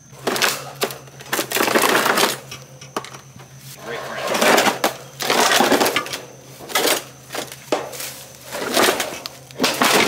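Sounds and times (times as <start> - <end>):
sheet metal clattering and scraping: 3.9 - 10.0.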